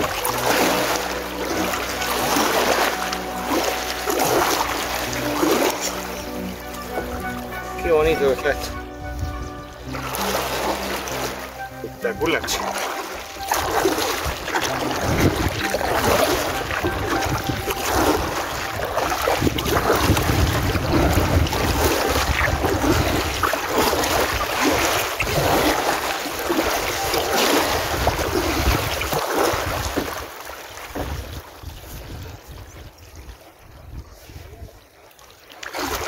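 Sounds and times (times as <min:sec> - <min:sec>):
paddle splashing water: 0:00.0 - 0:36.0
wind gusting on microphone: 0:14.2 - 0:25.6, 0:30.9 - 0:34.8.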